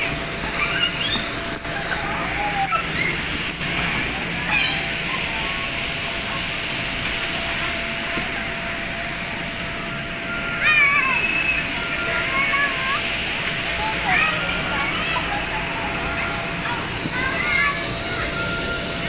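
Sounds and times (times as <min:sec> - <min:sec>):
indoor play area din: 0:00.0 - 0:19.0
children squealing and calling: 0:00.4 - 0:03.4, 0:04.2 - 0:06.4, 0:10.3 - 0:18.8.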